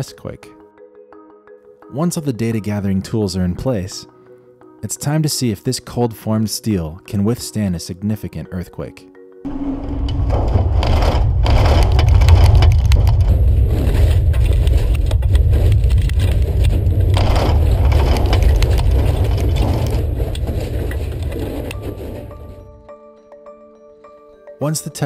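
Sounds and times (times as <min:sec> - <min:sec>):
deep rumble: 0:09.5 - 0:22.9
structure cracking and creaking: 0:09.5 - 0:22.9.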